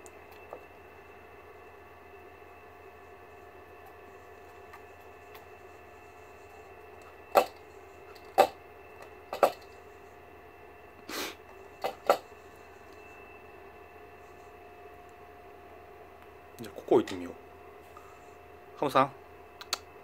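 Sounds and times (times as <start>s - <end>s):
hamster knocking and clicking: 7.3s - 7.6s, 8.2s - 8.6s, 9.3s - 9.7s, 11.8s - 12.2s.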